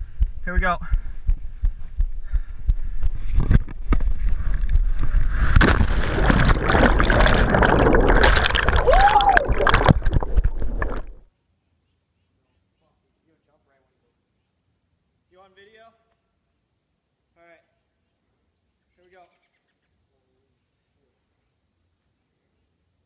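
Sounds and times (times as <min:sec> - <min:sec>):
wind buffeting camera: 0:00.0 - 0:11.2
plunge into water: 0:03.4 - 0:11.2
underwater rushing and bubbling: 0:03.4 - 0:11.2.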